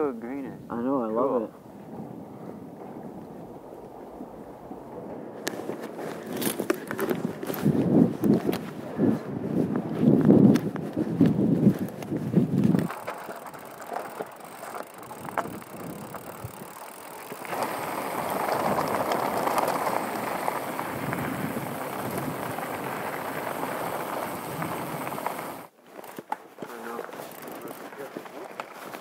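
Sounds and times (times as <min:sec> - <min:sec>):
wind on microphone: 0:01.4 - 0:25.7
tyres rolling on loose gravel: 0:01.6 - 0:29.0
bike clicks and rattles: 0:05.0 - 0:08.7, 0:09.8 - 0:29.0
bike rumbling over wooden planks: 0:11.7 - 0:29.0.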